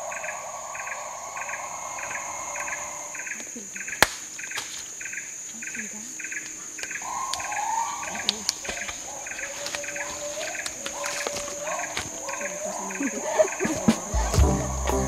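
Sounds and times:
insects droning: 0:00.0 - 0:15.0
pulsed insect chirping: 0:00.0 - 0:15.0
sharp snap: 0:04.0 - 0:04.8.

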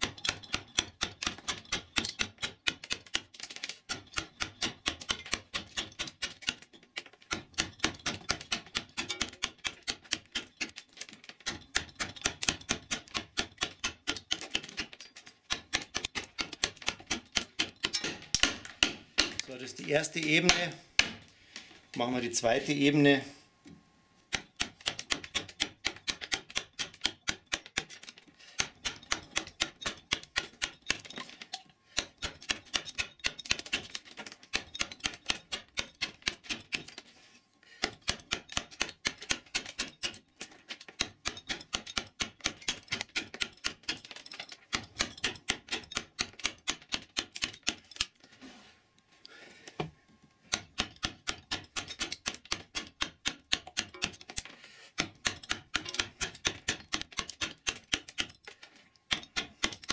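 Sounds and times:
mallet tapping gouge into wood: 0:50.5 - 0:54.4, 0:55.0 - 0:58.3.

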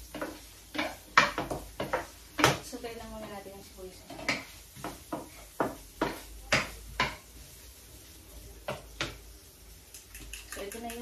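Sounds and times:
wooden spatula knocking on pan: 0:00.0 - 0:07.4, 0:08.6 - 0:09.3
food sauteing: 0:00.0 - 0:11.0.

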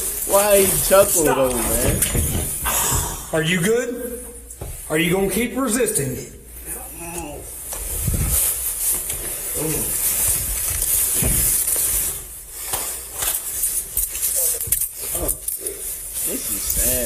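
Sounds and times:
clothing rubbing on microphone: 0:07.6 - 0:12.4.

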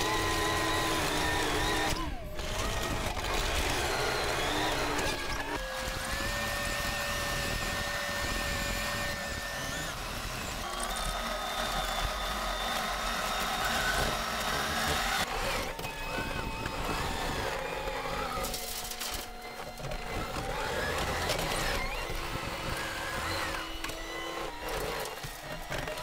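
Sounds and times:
diesel engine under load: 0:00.0 - 0:18.5
steady machine whine: 0:00.0 - 0:26.0.

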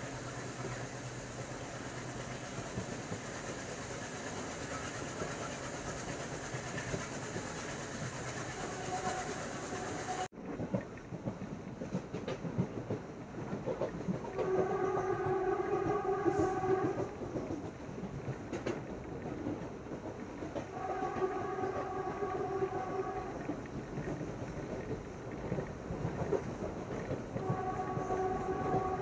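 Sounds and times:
passenger train rumble: 0:00.0 - 0:29.0
train wheel clacks: 0:00.0 - 0:29.0.

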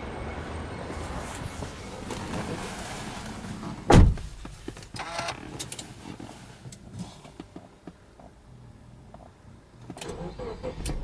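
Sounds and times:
heavy thump: 0:03.9 - 0:04.5.

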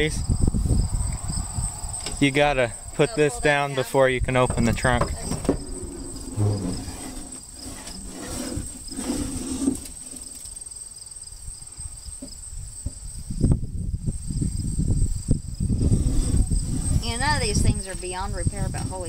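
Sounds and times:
insects trilling: 0:00.0 - 0:19.0
low rumbling: 0:04.2 - 0:09.8, 0:13.6 - 0:19.0.

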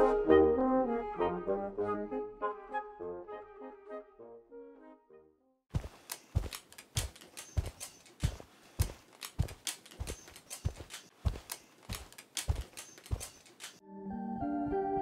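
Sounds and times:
footsteps on hard pavement: 0:05.7 - 0:13.8.

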